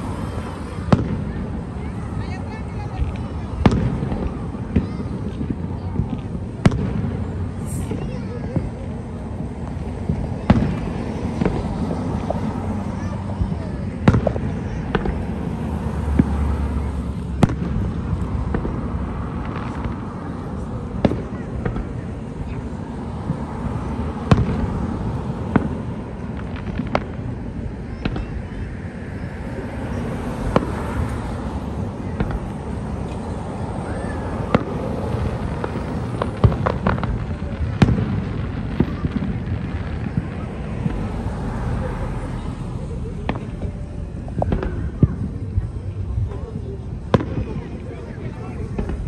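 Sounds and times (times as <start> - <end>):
distant fireworks bangs: 0.0 - 49.0
car driving past: 15.1 - 20.6, 28.6 - 37.1, 39.5 - 44.7.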